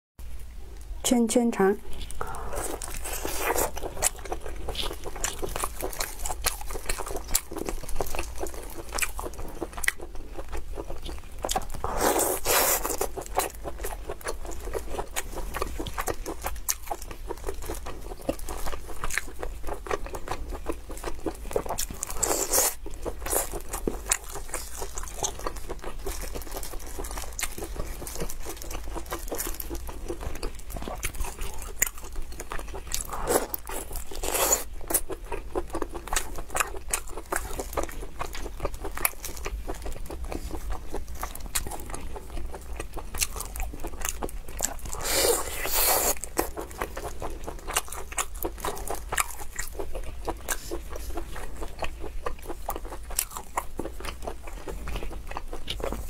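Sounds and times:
wet chewing and mouth smacks: 0:01.9 - 0:56.0.

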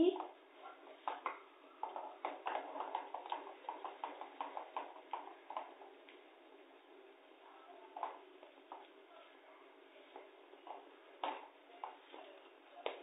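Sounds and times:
spatula stirring batter in a pan: 0:00.1 - 0:06.4.

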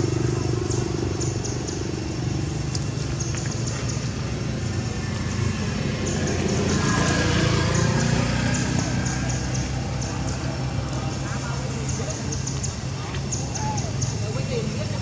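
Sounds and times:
low rumble of traffic: 0:00.0 - 0:15.0.

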